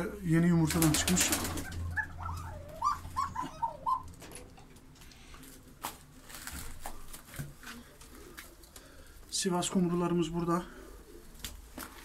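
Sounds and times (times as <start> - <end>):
pigeons cooing: 0.7 - 4.6.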